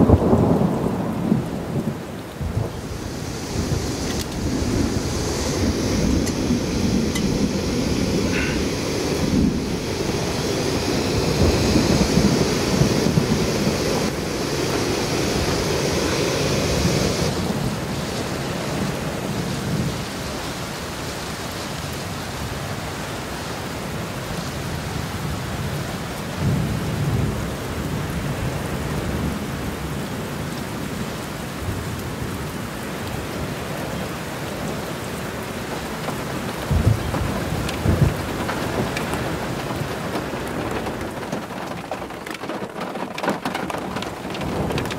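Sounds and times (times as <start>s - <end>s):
low rumbles of thunder: 0.0s - 18.0s, 35.7s - 44.9s
steady rain: 0.0s - 44.9s.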